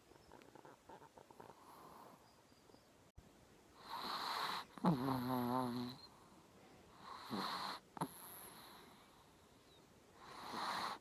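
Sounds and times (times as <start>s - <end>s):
dog snoring: 0.3s - 2.2s, 3.8s - 6.2s, 7.0s - 9.0s, 10.2s - 11.0s.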